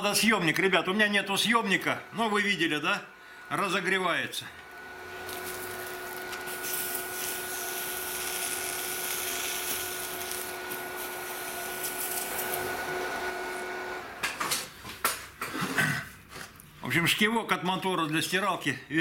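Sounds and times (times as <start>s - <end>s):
induction heater whine: 0.0s - 15.0s
water sizzling into steam: 5.3s - 12.6s.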